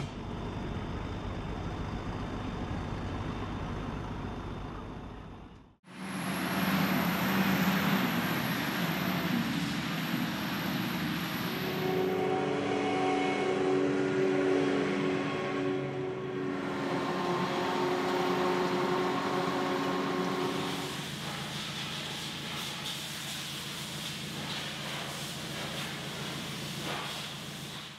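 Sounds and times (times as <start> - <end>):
tractor engines rumbling: 0.0 - 12.3
high machine whine: 0.0 - 12.6.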